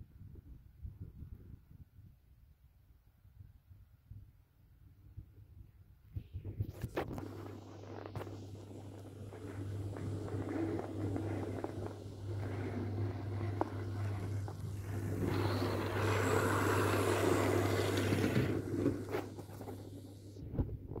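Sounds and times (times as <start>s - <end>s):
steady low hum: 6.6s - 21.0s
model train rattling on track: 9.4s - 20.4s.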